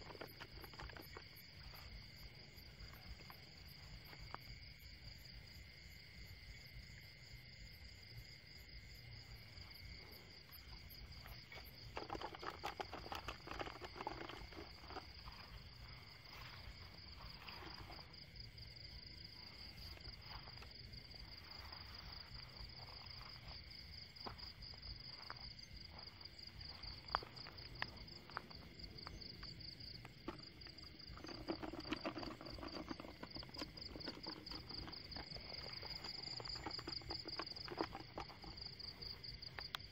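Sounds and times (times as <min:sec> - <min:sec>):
crickets trilling: 0:00.0 - 0:39.9
low insect drone: 0:00.0 - 0:39.9
rustling and brushing: 0:11.1 - 0:18.2, 0:30.2 - 0:39.0.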